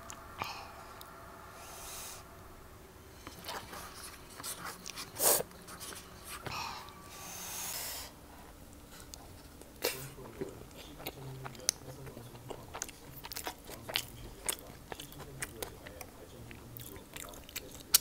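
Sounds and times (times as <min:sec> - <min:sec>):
person eating: 0:00.0 - 0:02.3, 0:03.1 - 0:18.0
soft breaths: 0:00.0 - 0:12.1.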